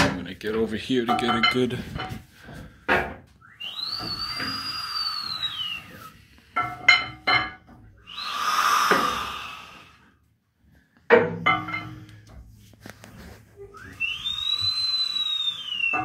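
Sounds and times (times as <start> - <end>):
whistling tone rising and falling: 3.4 - 6.2, 8.1 - 9.1, 13.7 - 16.0
metal clanks and ringing knocks: 6.6 - 7.9, 11.1 - 12.4
air hissing from compression cocks: 8.1 - 10.0.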